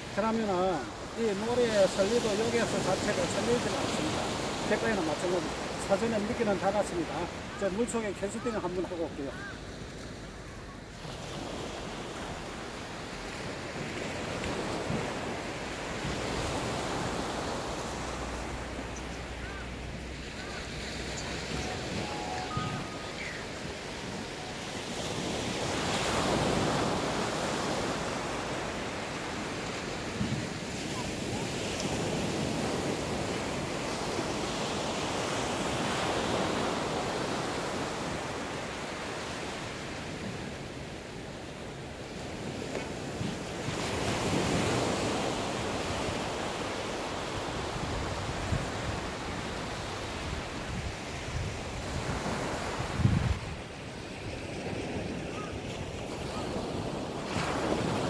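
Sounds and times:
waves breaking on a beach: 0.0s - 58.0s
wind on microphone: 50.0s - 58.0s.

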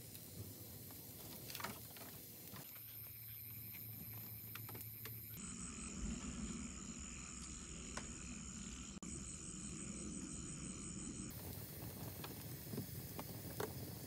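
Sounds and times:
fire crackling and popping: 0.0s - 5.4s, 11.3s - 14.0s
high insect trill: 0.0s - 14.0s.

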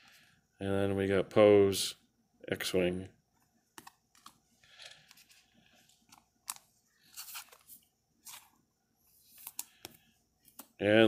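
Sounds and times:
soft card rustle: 3.4s - 11.0s.

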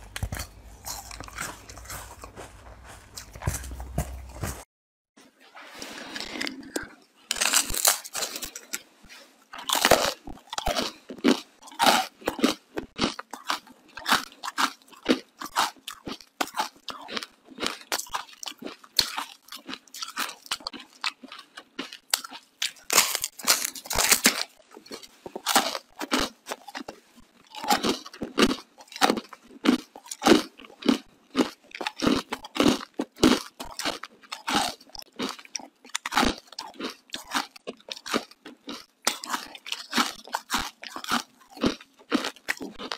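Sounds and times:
crunching and chewing ice: 0.0s - 4.6s, 5.9s - 42.9s.

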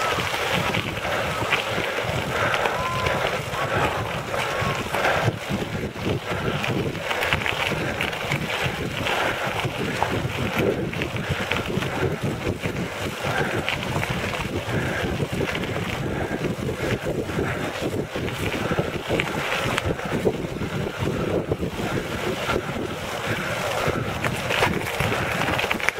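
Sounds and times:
tyres crunching on gravel: 0.0s - 25.9s
wind noise on microphone: 0.0s - 25.9s.

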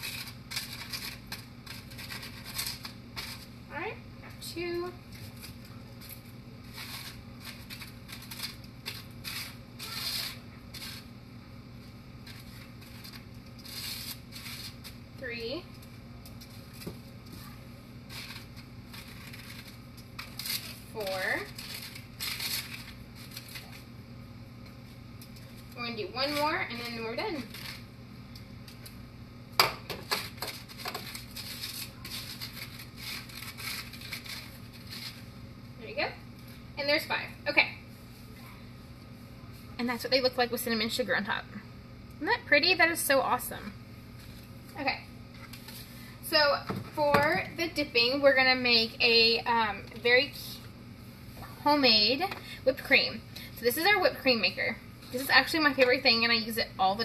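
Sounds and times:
crackly rustle of fried wrapper: 0.0s - 3.5s, 5.1s - 11.1s, 11.8s - 15.1s, 15.7s - 23.9s, 27.3s - 27.9s, 30.1s - 35.3s
steady low hum: 0.0s - 57.0s
knife crunching through fried food: 5.2s - 11.1s
tongs scraping on a plate: 12.2s - 15.0s.

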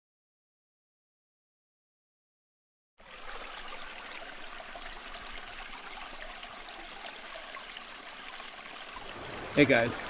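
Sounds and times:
stream flowing over stones: 3.0s - 10.0s.

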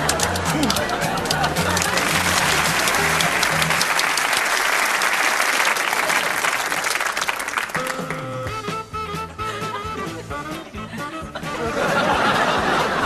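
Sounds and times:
music with bass line: 0.0s - 3.9s, 7.8s - 13.0s
audience applauding: 0.0s - 8.5s.

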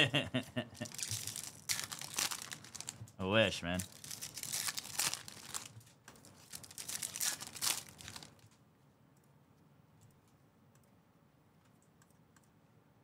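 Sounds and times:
wrappers crinkling and tearing: 0.8s - 3.1s, 3.7s - 8.6s.

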